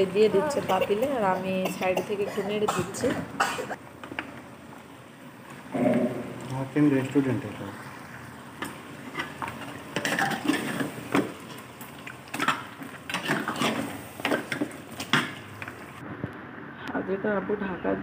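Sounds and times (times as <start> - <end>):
metal spatula scraping pot: 9.1 - 11.0, 12.3 - 14.6.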